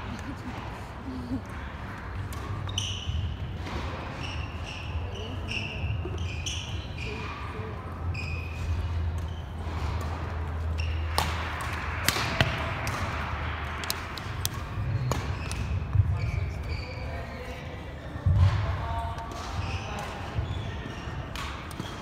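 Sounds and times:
sneakers squeaking on wooden court: 2.4s - 11.3s, 14.8s - 22.0s
racket striking shuttlecock: 9.1s - 16.0s.

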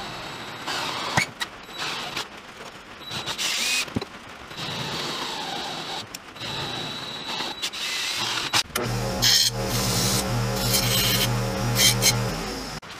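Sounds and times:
cordless drill drilling into metal: 7.8s - 12.6s.

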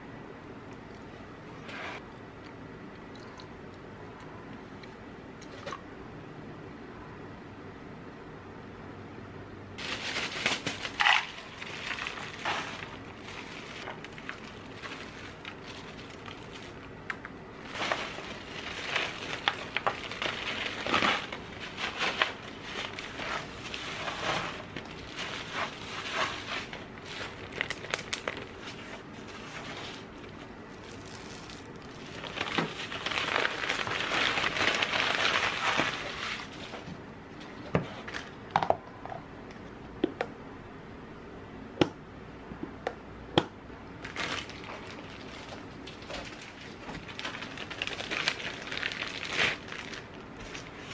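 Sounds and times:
granola crunching and rattling: 9.8s - 36.9s, 44.0s - 50.9s
plastic bag crinkling: 9.8s - 36.9s, 44.0s - 50.9s.

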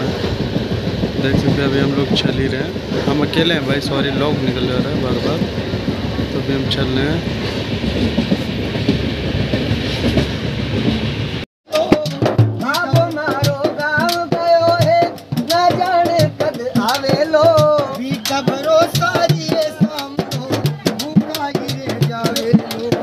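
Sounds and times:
train coach rumbling: 0.0s - 23.0s
man singing: 11.6s - 23.0s
hand drum beating: 11.7s - 23.0s.

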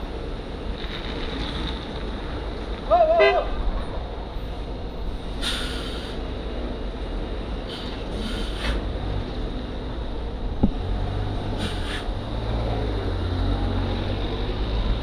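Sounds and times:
air brake hisses: 5.4s - 6.2s, 7.7s - 8.8s, 11.6s - 12.1s.

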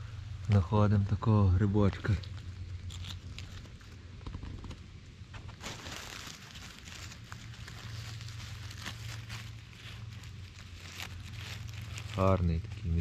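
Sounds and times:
dry leaves rustling and crackling: 1.6s - 4.0s, 5.3s - 13.0s
twigs snapping: 2.0s - 4.8s, 5.4s - 12.4s.

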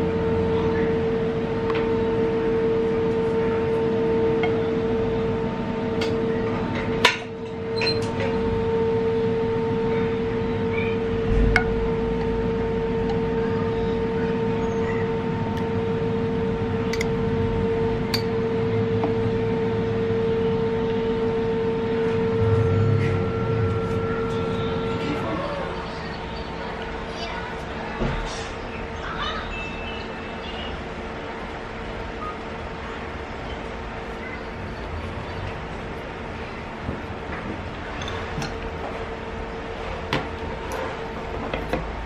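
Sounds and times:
steady hum of held tones: 0.0s - 42.0s.

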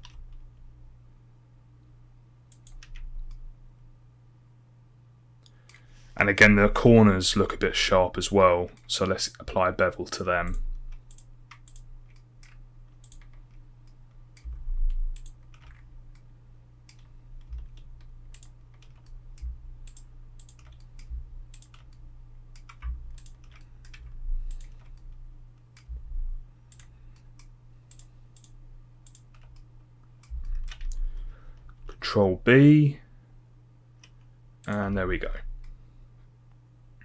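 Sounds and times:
keyboard and mouse clicking: 0.0s - 0.4s, 2.5s - 3.4s, 10.4s - 26.0s, 26.7s - 31.8s, 34.0s - 35.0s
steady low hum: 0.0s - 37.0s
low thumps: 25.9s - 26.4s.

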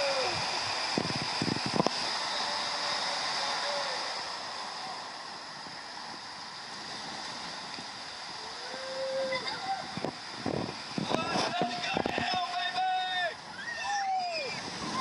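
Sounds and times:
water rushing under raft: 0.0s - 15.0s
faint shout: 8.4s - 10.0s, 12.7s - 15.0s.

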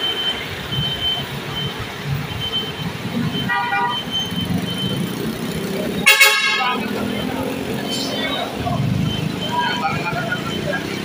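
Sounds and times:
high steady beep: 0.0s - 5.2s, 6.0s - 11.0s
traffic engine rumble: 0.0s - 11.0s
vehicle horn toot: 3.4s - 4.1s, 6.0s - 6.8s.

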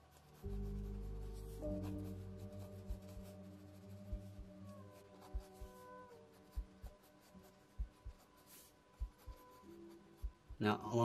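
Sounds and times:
pencil scratching on paper: 0.0s - 10.6s
soft background music: 0.0s - 11.0s
low beat of paired thumps: 2.6s - 5.8s, 7.8s - 8.3s, 9.0s - 9.4s.

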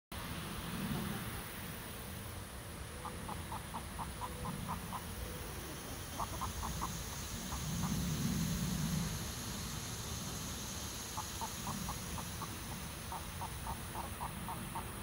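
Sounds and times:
hens clucking: 3.0s - 8.0s, 11.2s - 15.0s.

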